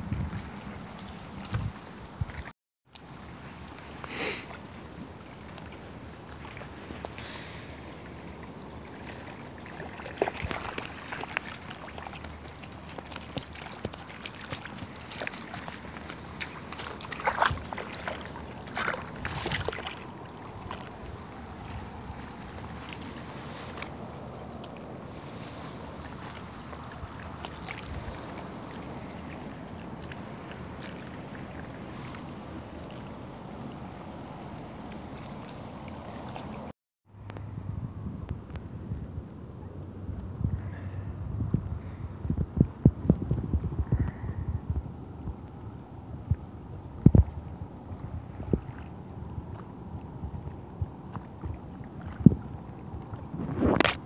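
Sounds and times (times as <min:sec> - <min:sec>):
wind rumble on microphone: 0:00.0 - 0:02.5, 0:04.8 - 0:54.0
steady outdoor hiss: 0:03.0 - 0:42.9.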